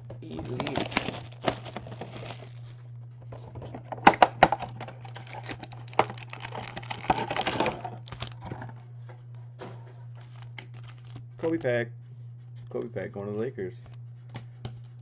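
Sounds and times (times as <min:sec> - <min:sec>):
low electrical hum: 0:00.0 - 0:15.0
plastic wrapping crinkling: 0:00.2 - 0:02.8, 0:04.0 - 0:08.7, 0:10.1 - 0:11.3.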